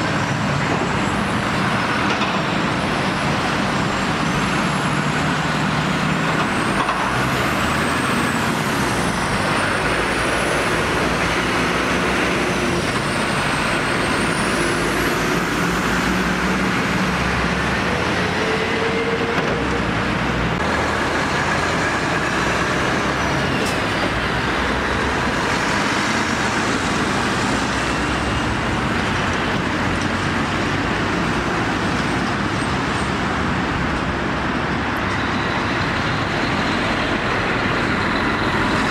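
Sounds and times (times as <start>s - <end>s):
lorries driving past: 0.0s - 38.9s
tyre and road noise: 0.0s - 38.9s.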